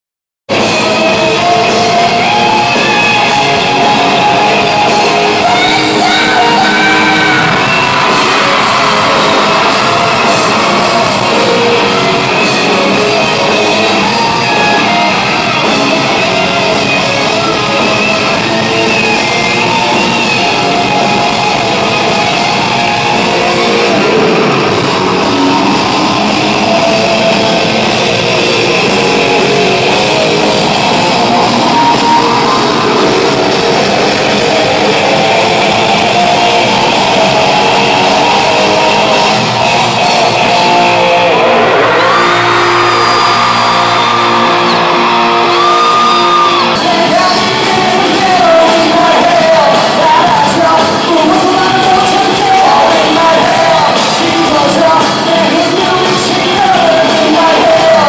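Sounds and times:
person singing: 0.5s - 43.2s, 44.6s - 58.0s
live rock band playing: 0.5s - 58.0s.

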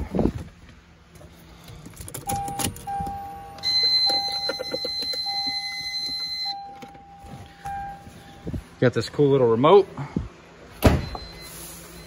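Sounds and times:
car warning buzzer: 2.3s - 8.5s.

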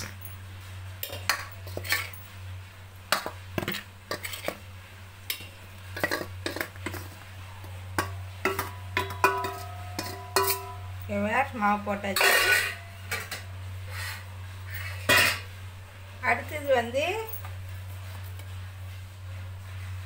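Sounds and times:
metal spoon clinking on steel bowl: 1.0s - 2.3s, 5.3s - 7.1s, 8.0s - 11.2s, 12.1s - 13.5s
steel jar ringing: 8.0s - 13.5s.

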